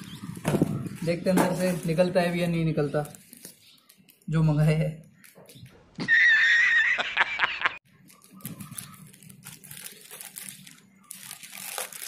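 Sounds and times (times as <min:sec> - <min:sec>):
plastic crinkling: 0:00.0 - 0:04.3, 0:07.9 - 0:12.0
scissors cutting plastic mailer: 0:08.0 - 0:12.0.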